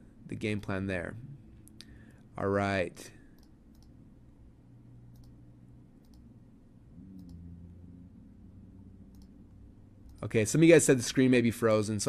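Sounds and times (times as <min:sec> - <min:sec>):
low room hum: 0:00.0 - 0:12.0
computer mouse clicks: 0:03.3 - 0:04.0, 0:05.1 - 0:05.4, 0:06.0 - 0:06.3, 0:07.1 - 0:07.4, 0:09.1 - 0:09.4.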